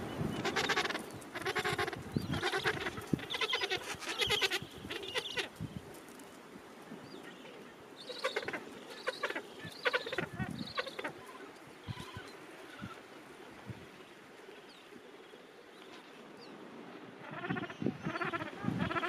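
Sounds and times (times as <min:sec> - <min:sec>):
penguins calling: 0:00.4 - 0:05.5.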